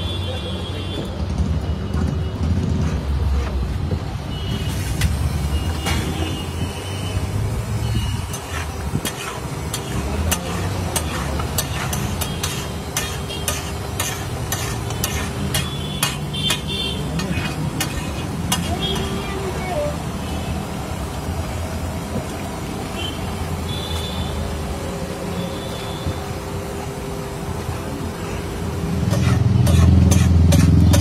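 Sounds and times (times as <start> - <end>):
metal ladle scraping griddle: 8.0 - 19.2, 29.0 - 31.0.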